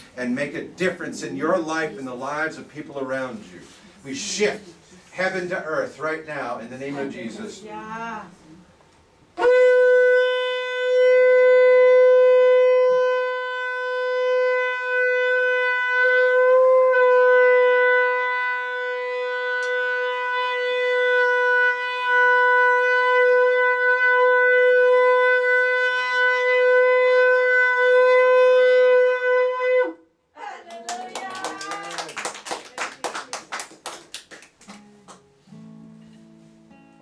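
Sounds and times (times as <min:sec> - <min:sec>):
shofar long held note: 0:09.4 - 0:30.2.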